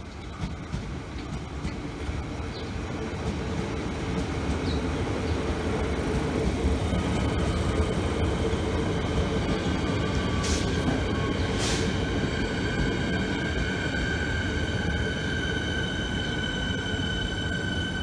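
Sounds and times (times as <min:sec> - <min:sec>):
train wheels rumbling on rail: 0:00.0 - 0:18.0
high electric tones from train: 0:06.7 - 0:18.0
short hisses: 0:11.6 - 0:12.0.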